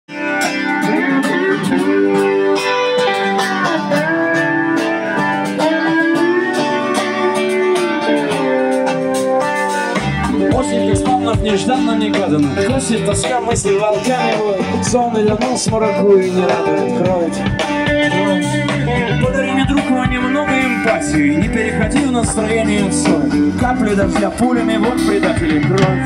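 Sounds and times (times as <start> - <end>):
lead guitar with bent notes: 0.1 - 26.0
rock band playing: 0.1 - 26.0
bass and kick drum: 10.0 - 26.0.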